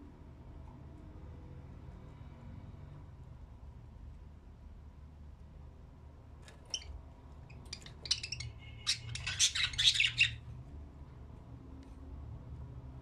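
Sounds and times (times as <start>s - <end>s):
budgerigars chirping: 7.5s - 10.4s.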